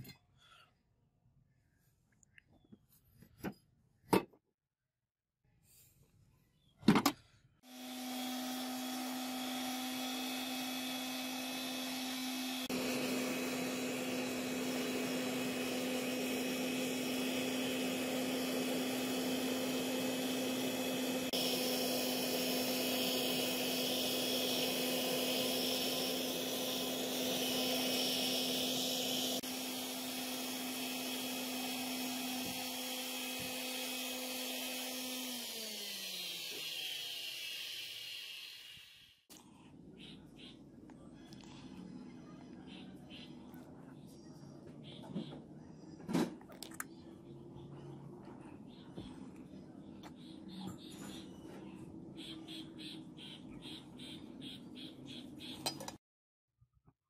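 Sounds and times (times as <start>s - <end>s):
gas burner rushing and humming: 7.7s - 39.3s.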